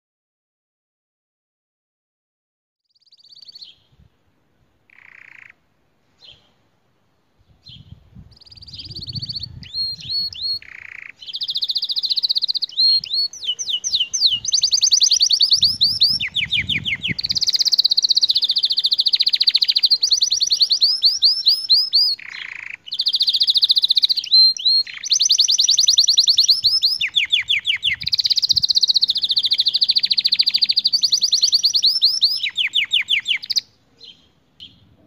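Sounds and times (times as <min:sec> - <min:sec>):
canary singing trills: 0:02.9 - 0:03.9, 0:04.9 - 0:05.6, 0:07.5 - 0:34.9.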